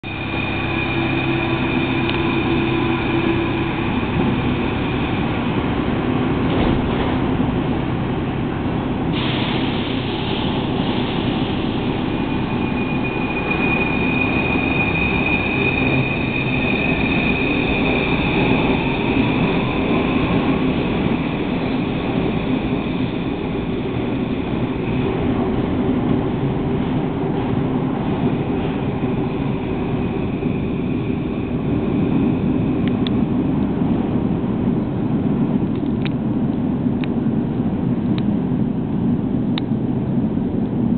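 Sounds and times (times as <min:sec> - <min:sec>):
wheel on rail rumble: 0:00.0 - 0:40.9
train motor whine: 0:00.1 - 0:25.4.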